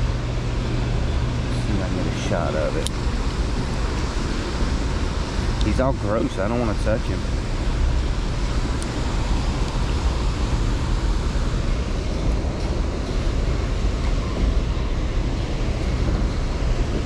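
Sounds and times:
steady rushing noise: 0:00.0 - 0:17.0.

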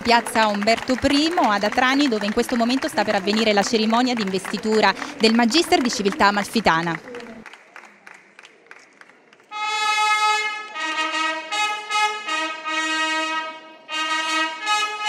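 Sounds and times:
faint clapping: 0:00.0 - 0:09.5
trumpet fanfare: 0:09.5 - 0:15.0.

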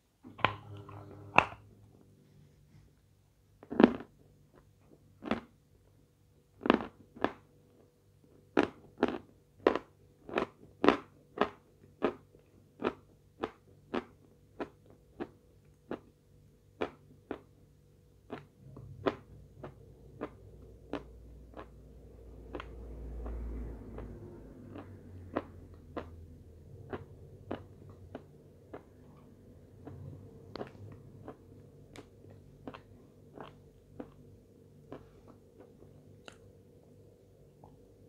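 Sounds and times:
person chewing crunchy chalk: 0:03.6 - 0:05.6, 0:06.6 - 0:07.5, 0:08.5 - 0:17.6, 0:18.2 - 0:36.5.

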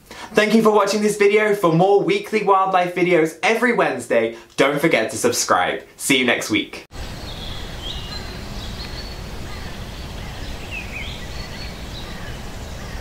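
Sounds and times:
small birds chirping: 0:07.0 - 0:13.0.

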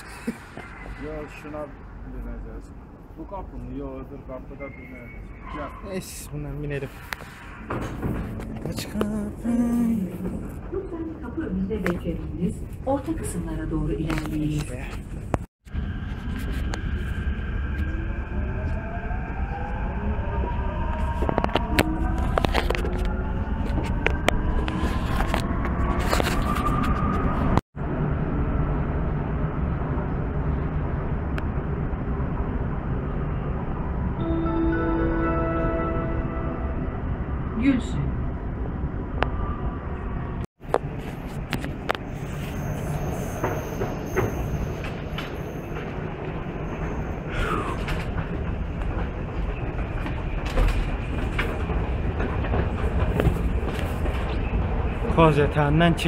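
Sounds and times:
train rumbling: 0:00.0 - 0:56.0
short falling squeal: 0:04.4 - 0:06.0.

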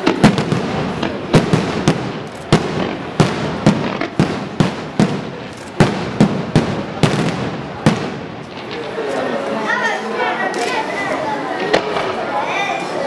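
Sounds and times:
firework shell bursts: 0:00.0 - 0:09.3
fireworks crackle and hiss: 0:00.0 - 0:13.0.

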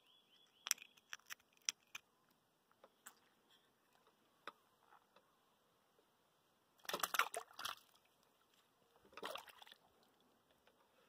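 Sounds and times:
river water splashing: 0:06.8 - 0:08.2, 0:09.1 - 0:10.1.

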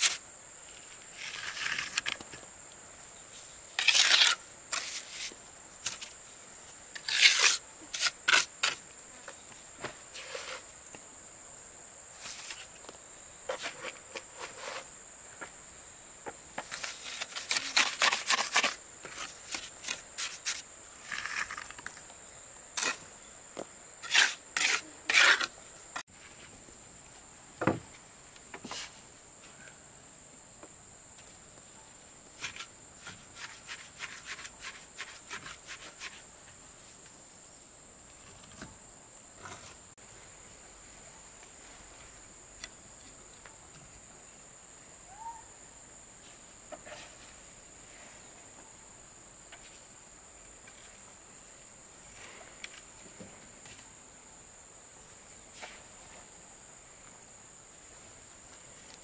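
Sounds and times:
insects droning: 0:00.0 - 0:59.0
trowel scraping mortar: 0:03.8 - 0:06.1, 0:06.9 - 0:08.8, 0:16.7 - 0:21.8, 0:24.0 - 0:25.6, 0:32.4 - 0:36.2.

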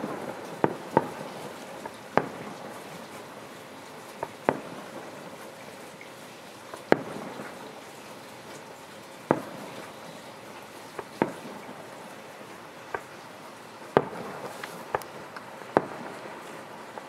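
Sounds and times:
firework bangs: 0:00.0 - 0:05.8, 0:06.7 - 0:07.8, 0:09.3 - 0:10.2, 0:10.9 - 0:12.3, 0:13.8 - 0:17.0
steady hiss: 0:00.0 - 0:17.0.

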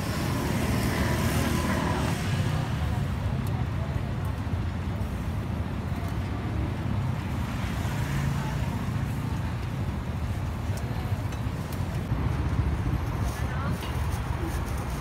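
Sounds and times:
traffic rumble: 0:00.0 - 0:15.0
wind buffeting microphone: 0:09.6 - 0:15.0.

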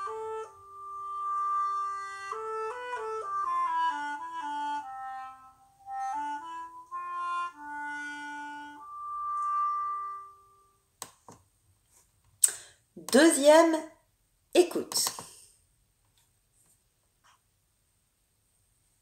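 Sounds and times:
woodwind solo melody: 0:00.0 - 0:10.8.

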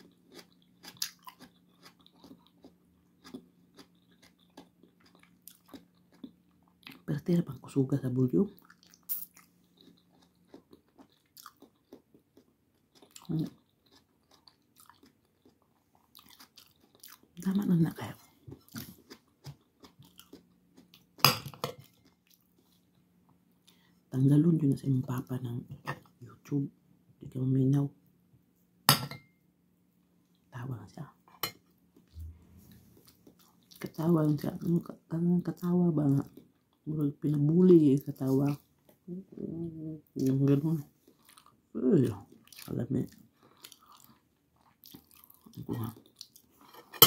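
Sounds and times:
person chewing: 0:00.0 - 0:07.1, 0:08.6 - 0:17.6, 0:18.2 - 0:23.9, 0:31.4 - 0:34.8, 0:40.2 - 0:47.0
faint steady hum: 0:00.0 - 0:47.0.

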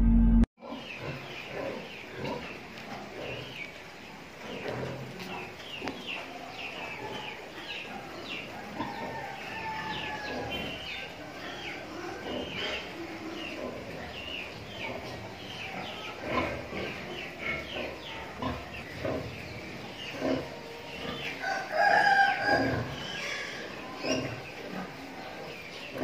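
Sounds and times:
rooster crowing: 0:08.5 - 0:11.7, 0:21.4 - 0:23.5.

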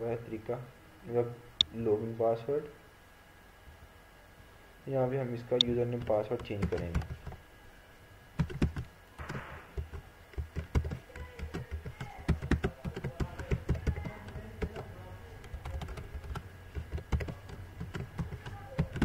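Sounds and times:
keyboard typing: 0:05.6 - 0:07.4, 0:08.4 - 0:19.0.

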